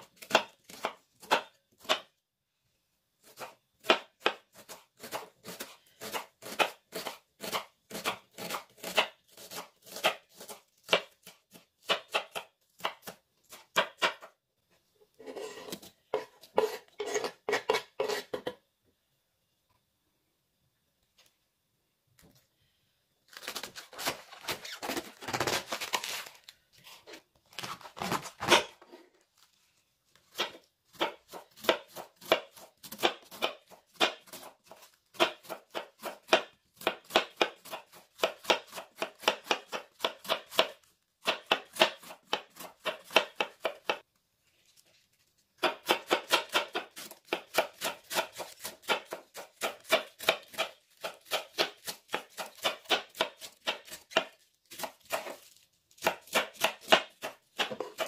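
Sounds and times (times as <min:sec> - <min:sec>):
knife shredding cabbage: 0:03.2 - 0:14.3, 0:30.2 - 0:44.1, 0:45.3 - 0:58.0.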